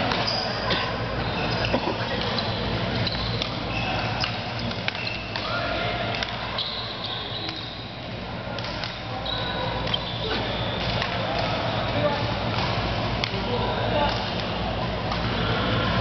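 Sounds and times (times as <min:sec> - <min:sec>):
shoes squeaking on floor: 0:00.2 - 0:05.3, 0:06.6 - 0:07.8
rackets hitting shuttlecock: 0:02.2 - 0:06.5, 0:09.8 - 0:11.6, 0:12.5 - 0:15.4.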